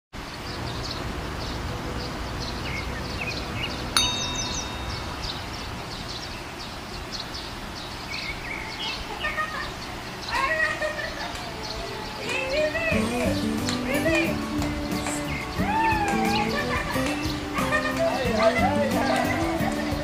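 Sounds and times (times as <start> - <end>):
birds chirping: 0.2 - 20.0
bright chime ringing: 4.0 - 5.9.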